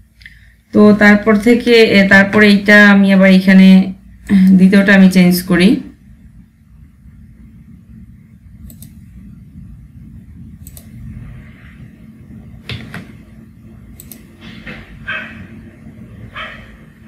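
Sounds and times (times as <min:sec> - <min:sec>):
steady low hum: 0:00.0 - 0:17.0
computer mouse and keyboard clicks: 0:08.6 - 0:09.0, 0:10.6 - 0:10.9, 0:13.9 - 0:14.6.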